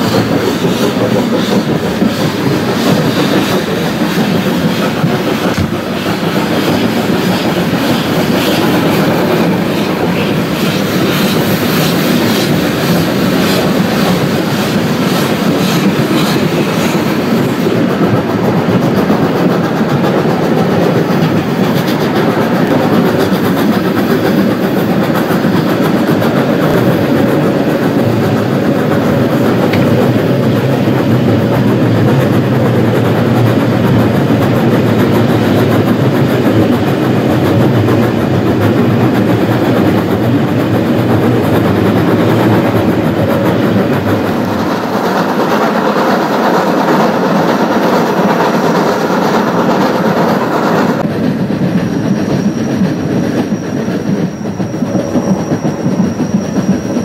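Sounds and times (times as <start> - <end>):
steam locomotive working: 0.0 - 57.0
wheels running on rails: 0.0 - 57.0.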